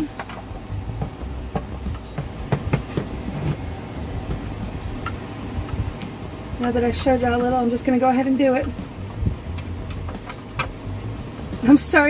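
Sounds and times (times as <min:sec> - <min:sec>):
knocks from handling wood: 0:00.9 - 0:03.6.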